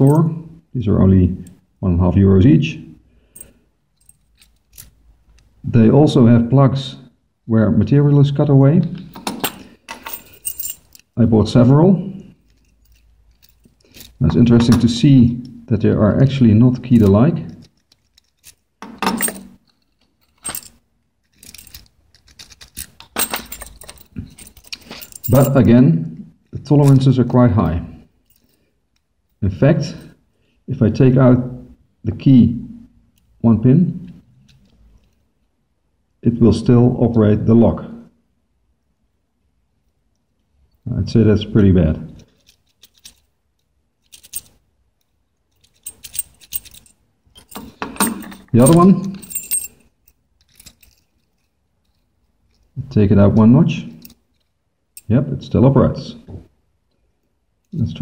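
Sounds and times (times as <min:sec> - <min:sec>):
keys jingling: 0:03.4 - 0:05.4, 0:09.1 - 0:11.2, 0:12.2 - 0:15.0, 0:16.9 - 0:25.7, 0:28.2 - 0:28.7, 0:42.2 - 0:52.8, 0:53.9 - 0:55.1.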